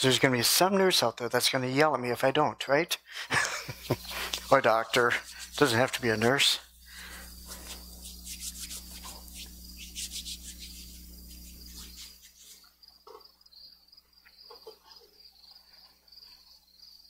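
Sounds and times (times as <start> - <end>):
low electrical hum: 0.0 - 15.1
crickets chirping: 3.1 - 17.0
hands rubbing together: 3.5 - 12.7.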